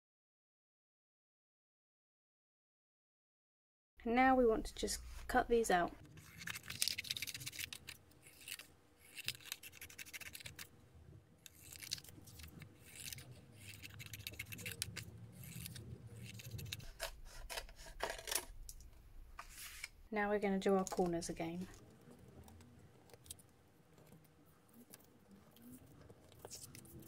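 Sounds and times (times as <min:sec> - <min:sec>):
scissors cutting paper: 0:06.0 - 0:10.7, 0:11.4 - 0:18.5, 0:20.8 - 0:27.0.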